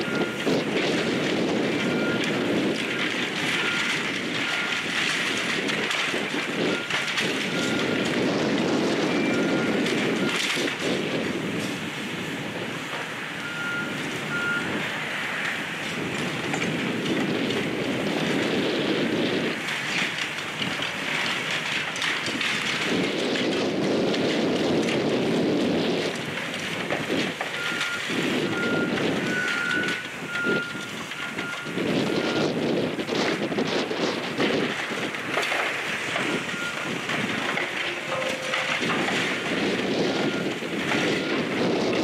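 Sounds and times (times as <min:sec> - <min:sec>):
brick and debris crunching: 0:00.0 - 0:10.9, 0:18.4 - 0:42.0
excavator diesel engines under load: 0:00.0 - 0:42.0
backup alarm beeping: 0:37.7 - 0:39.0.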